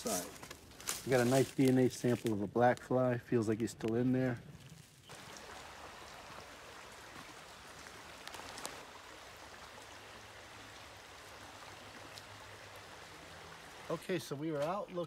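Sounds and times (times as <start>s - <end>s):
stream babbling over stones: 5.0s - 14.2s.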